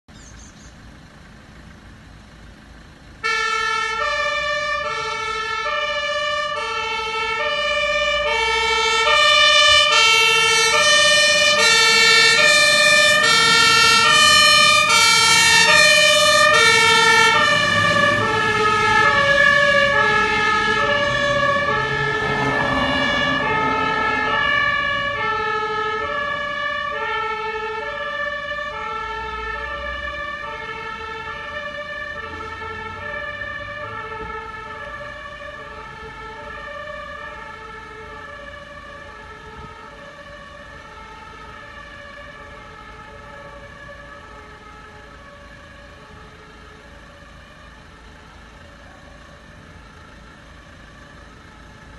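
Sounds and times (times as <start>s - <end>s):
truck engine rumble: 0.1s - 51.9s
two-tone fire engine siren: 3.2s - 51.9s.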